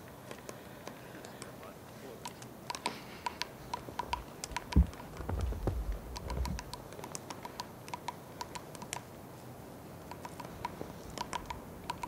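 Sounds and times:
woodpecker tapping on tree: 2.2s - 9.2s, 10.0s - 12.0s.

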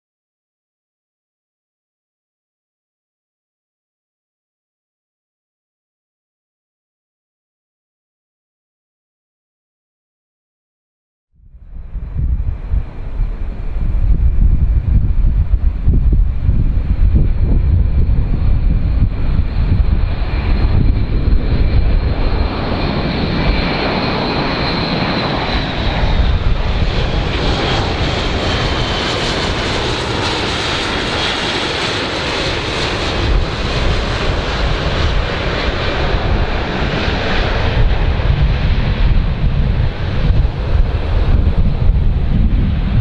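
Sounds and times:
turboprop aircraft droning past: 11.4s - 43.0s.

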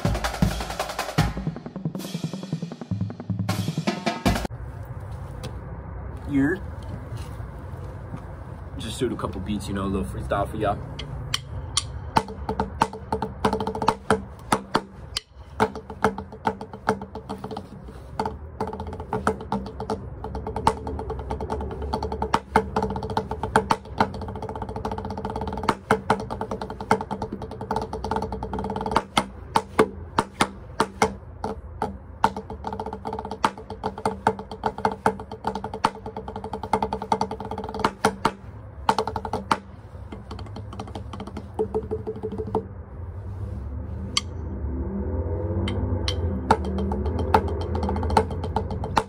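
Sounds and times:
drumsticks tapping practice pad: 9.8s - 42.7s, 44.1s - 44.3s, 45.7s - 49.0s.

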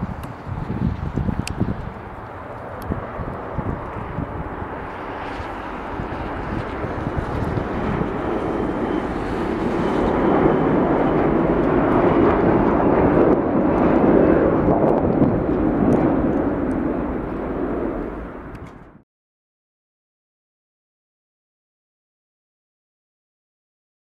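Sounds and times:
jet plane passing overhead: 0.0s - 19.0s.

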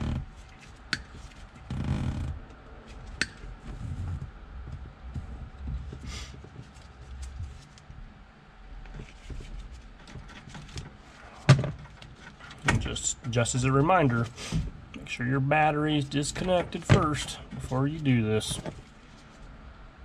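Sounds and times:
handling and rustling: 5.1s - 8.0s, 8.9s - 14.7s, 16.4s - 19.6s.

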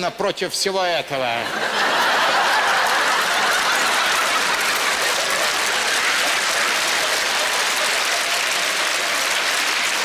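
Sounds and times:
audience laughing: 1.2s - 9.0s
audience applauding: 1.6s - 10.0s.

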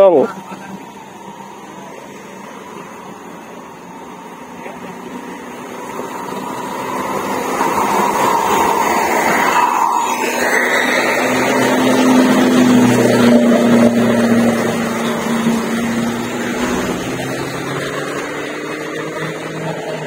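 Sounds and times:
passing vehicle engine hum: 0.0s - 20.0s.

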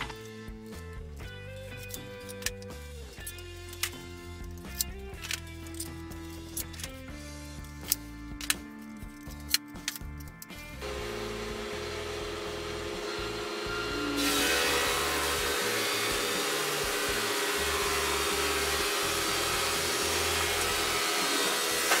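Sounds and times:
planer cutting wood: 10.8s - 22.0s
planer humming: 10.8s - 22.0s.

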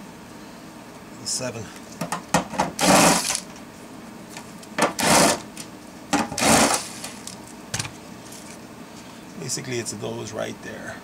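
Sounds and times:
cordless drill running: 2.8s - 3.4s, 5.0s - 5.4s, 6.4s - 7.3s.

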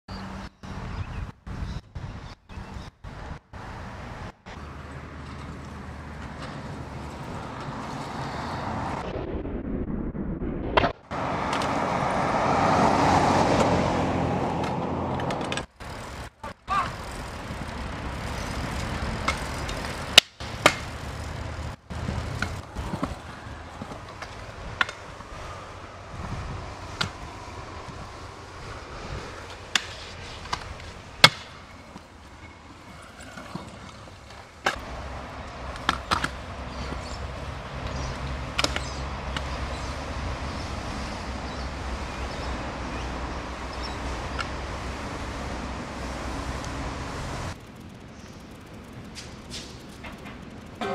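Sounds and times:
scooter wheels rolling on concrete: 0.1s - 9.1s, 11.0s - 50.9s
traffic hum: 0.1s - 50.9s
scooter deck clacking on ground: 5.2s - 8.2s, 14.6s - 25.3s, 29.3s - 37.2s, 37.8s - 39.6s, 47.5s - 50.9s.

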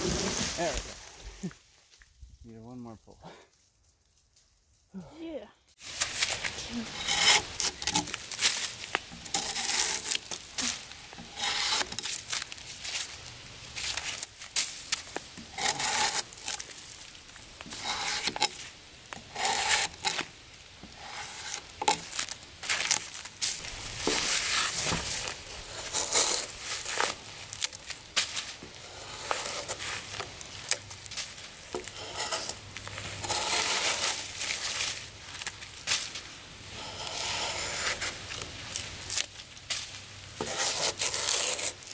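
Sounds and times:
drawknife scraping bark: 6.2s - 12.4s, 15.4s - 16.8s, 17.6s - 20.3s, 20.9s - 23.1s, 23.9s - 28.0s, 28.7s - 30.9s, 31.7s - 35.0s, 36.7s - 39.3s, 40.4s - 41.9s.

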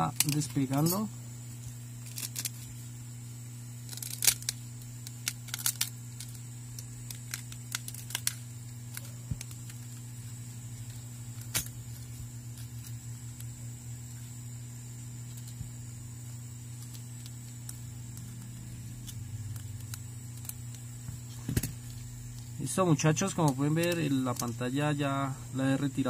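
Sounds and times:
steady electrical hum: 0.0s - 26.0s.

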